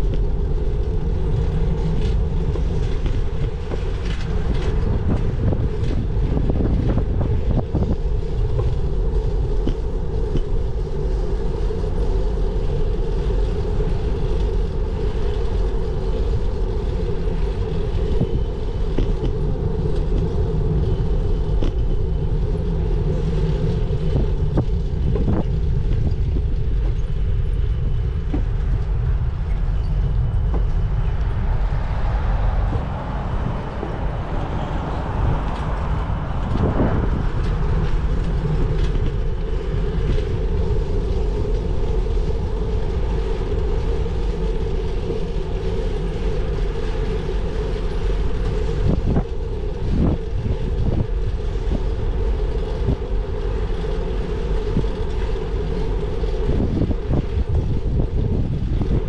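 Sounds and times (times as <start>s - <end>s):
bicycle rumble and rattle on road: 0.0s - 59.0s.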